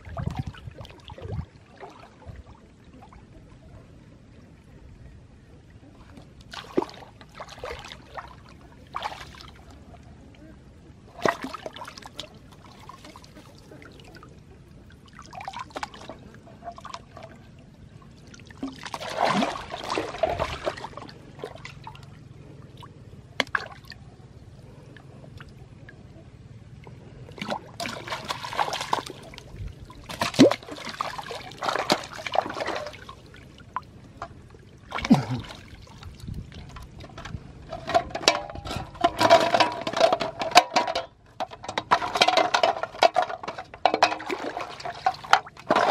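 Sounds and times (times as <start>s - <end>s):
water splashing and trickling: 0.0s - 3.7s, 5.9s - 10.2s, 11.0s - 45.9s
fish thrashing in water: 18.4s - 21.8s, 27.4s - 33.4s.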